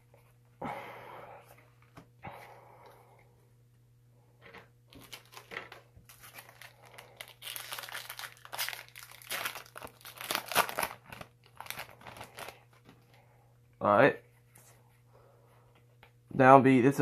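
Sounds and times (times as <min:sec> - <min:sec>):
foil wrapper crinkling and tearing: 0:04.9 - 0:12.8.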